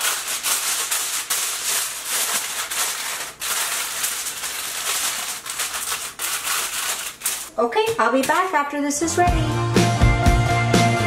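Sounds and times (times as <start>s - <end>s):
aluminum foil crinkling: 0.0s - 8.8s.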